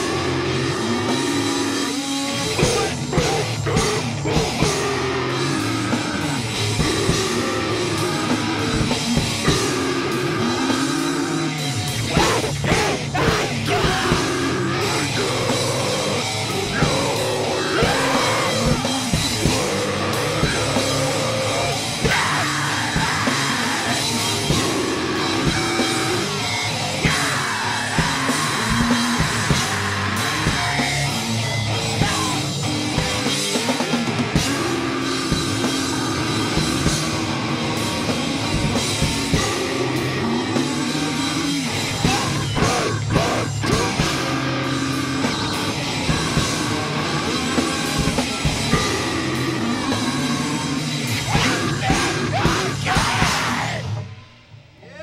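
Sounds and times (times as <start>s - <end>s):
pounding drum kit: 0.0s - 54.9s
distorted electric guitars and bass: 0.0s - 55.0s
vocalist yelling: 2.5s - 31.2s, 41.7s - 45.4s, 51.2s - 54.1s, 54.8s - 55.0s.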